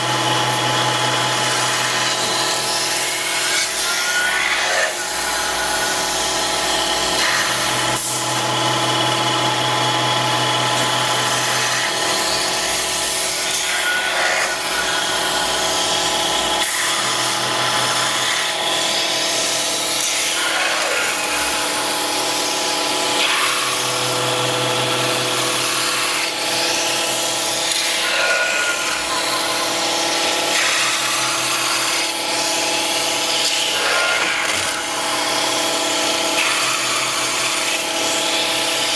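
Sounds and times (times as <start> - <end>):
lathe machine whine: 0.0 - 38.9.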